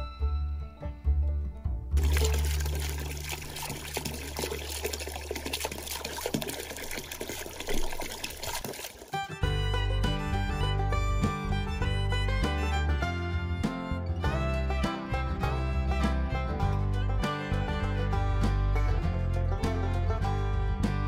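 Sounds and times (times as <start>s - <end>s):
background music: 0.0s - 4.7s, 9.2s - 21.0s
water splashing into a bucket: 2.0s - 9.3s.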